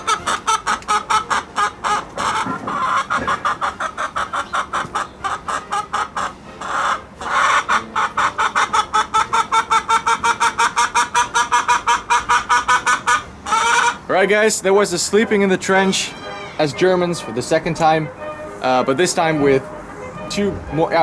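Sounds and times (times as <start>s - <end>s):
hen clucking: 0.0s - 14.2s.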